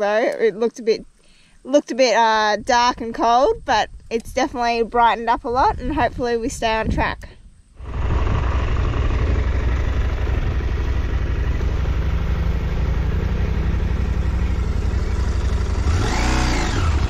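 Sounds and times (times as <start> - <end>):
wind noise: 2.4 - 11.8
motorcycle engine running: 7.8 - 17.0.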